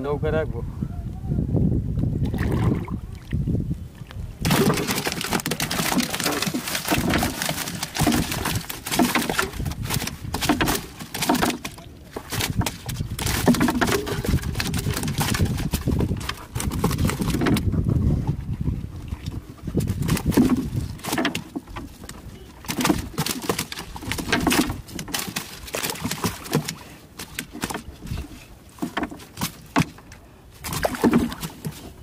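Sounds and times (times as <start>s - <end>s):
fish flapping in a net: 4.4s - 17.7s, 19.8s - 30.0s
net rustling: 4.5s - 11.6s.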